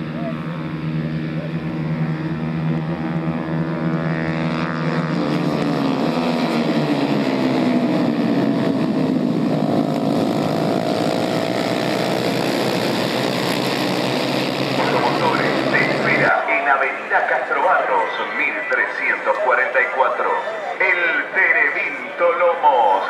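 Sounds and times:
racing motorcycles at high revs: 0.0s - 16.3s.

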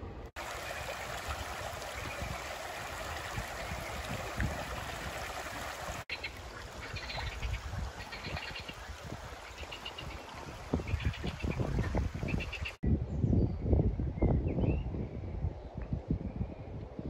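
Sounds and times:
stream babbling over stones: 0.4s - 12.2s
bird calls: 6.1s - 12.8s.

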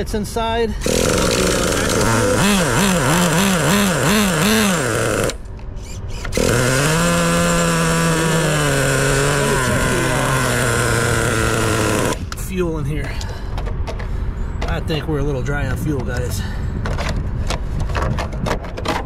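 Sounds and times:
model car engine revving: 0.8s - 12.2s.

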